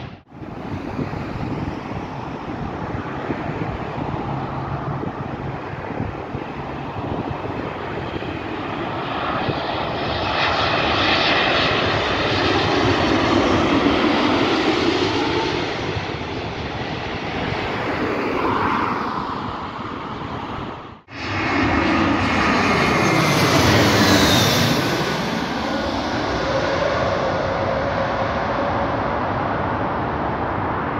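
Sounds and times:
airliner jet engine roar: 0.0s - 30.9s
jet airliner passing overhead: 0.0s - 30.9s.

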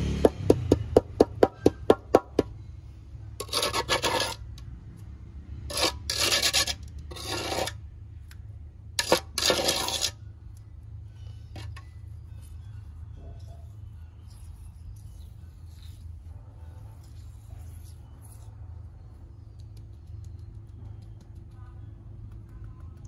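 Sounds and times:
trowel scraping wet cement: 3.4s - 4.6s, 5.7s - 7.8s, 9.0s - 10.2s.

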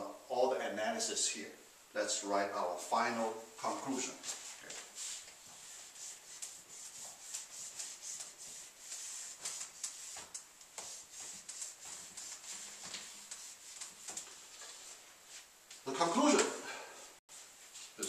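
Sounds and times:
whiteboard eraser wiping: 4.1s - 15.5s.

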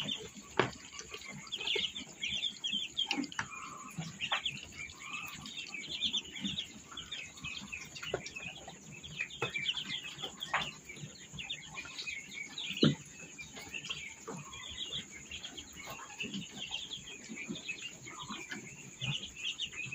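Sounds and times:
ducklings peeping: 0.0s - 19.9s.

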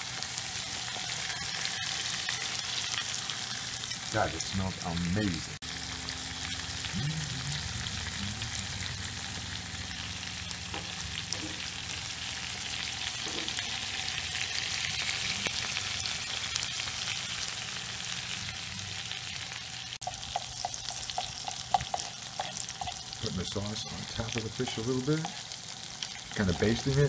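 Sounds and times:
fish sizzling in a frying pan: 0.0s - 27.0s
low hum: 5.6s - 12.4s.

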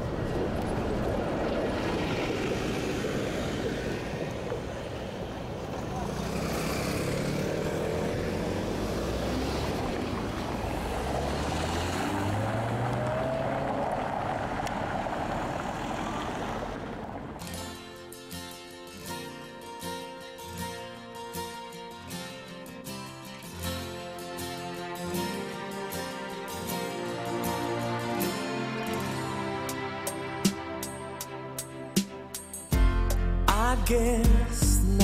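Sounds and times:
car engines passing: 0.0s - 17.9s, 23.7s - 31.9s
guitar music: 17.4s - 35.0s.

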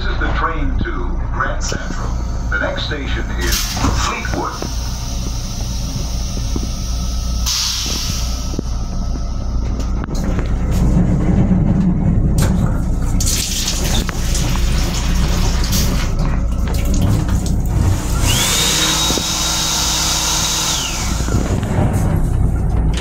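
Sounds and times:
high whine: 0.0s - 23.0s
train low rumble: 0.0s - 23.0s
faucet water running into basin: 13.2s - 20.7s.

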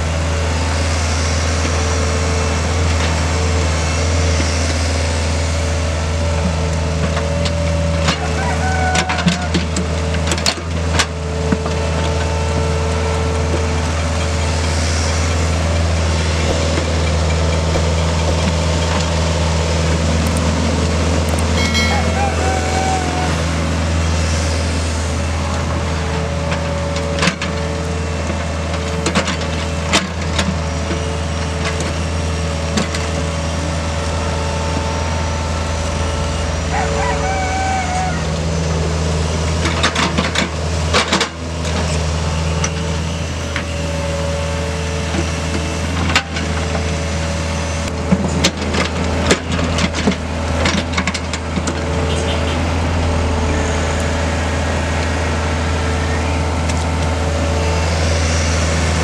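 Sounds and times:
excavator diesel engine running: 0.0s - 59.0s
hydraulic whine: 10.4s - 59.0s.

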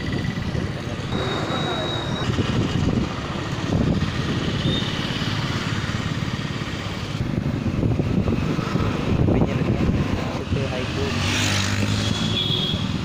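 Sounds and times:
motorcycle engine running: 0.0s - 8.2s
wind rumble on microphone: 2.1s - 4.8s, 7.1s - 10.7s.

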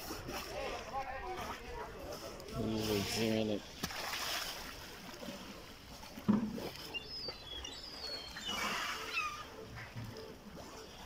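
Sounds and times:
seabirds chirping: 6.6s - 11.0s
sea lions barking: 7.2s - 10.8s.

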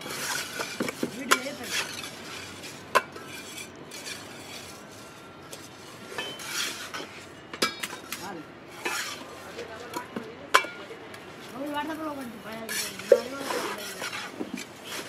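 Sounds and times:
trowel scraping wet cement: 0.0s - 7.3s, 8.0s - 9.3s, 12.6s - 15.0s.

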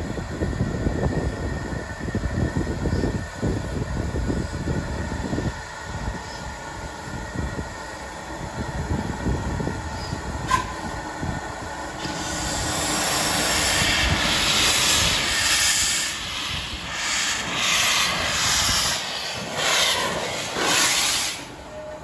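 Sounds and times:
steam locomotive rumbling: 0.0s - 22.0s
steam hissing in bursts: 11.8s - 22.0s.

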